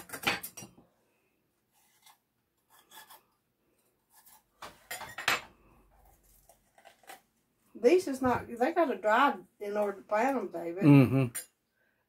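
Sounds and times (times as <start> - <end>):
peppers scraping on cutting board: 1.7 - 3.3, 5.9 - 7.3.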